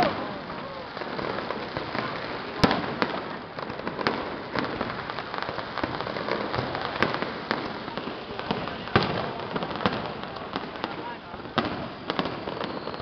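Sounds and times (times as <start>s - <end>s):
fireworks bangs: 0.0s - 13.0s
fireworks crackling: 0.0s - 13.0s.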